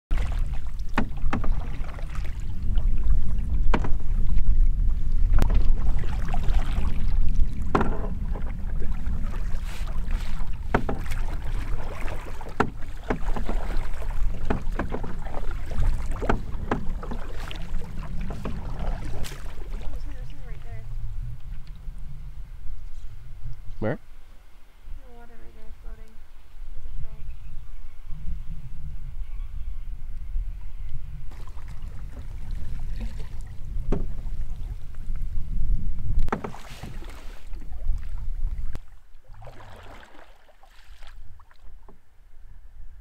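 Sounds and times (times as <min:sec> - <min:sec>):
paddle splashes and knocks: 0:00.1 - 0:20.8, 0:31.2 - 0:35.4, 0:36.0 - 0:42.1
wind rumble on microphone: 0:00.1 - 0:40.1.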